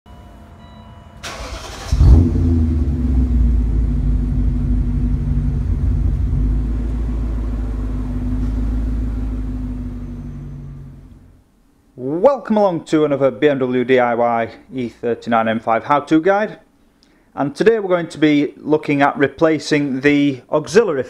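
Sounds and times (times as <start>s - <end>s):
car engine starting and idling: 1.2s - 11.4s.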